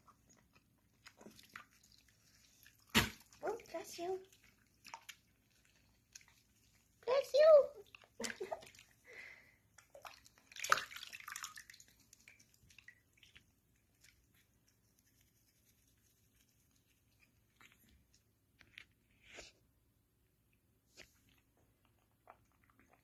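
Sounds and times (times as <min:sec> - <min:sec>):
water splashing in a sink: 0:00.0 - 0:14.2.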